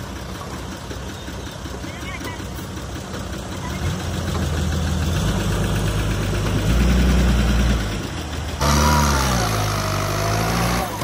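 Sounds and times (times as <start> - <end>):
truck engine revving: 2.6 - 11.0.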